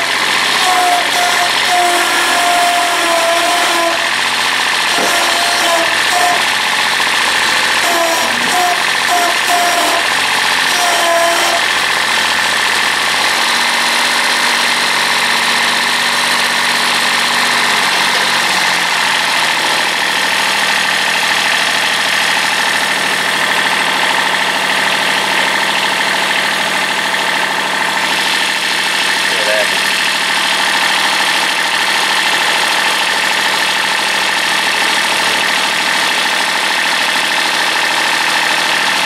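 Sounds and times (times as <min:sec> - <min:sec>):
tractor diesel engine running: 0:00.0 - 0:39.0.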